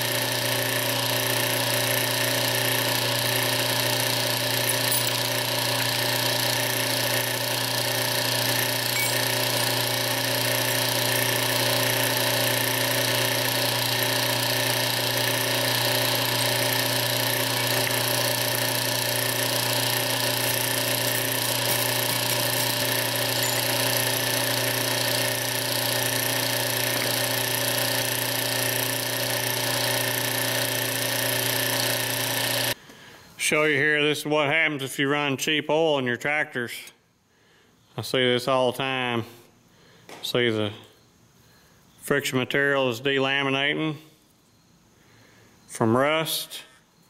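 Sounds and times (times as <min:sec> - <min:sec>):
machine humming with high whine: 0:00.1 - 0:31.0.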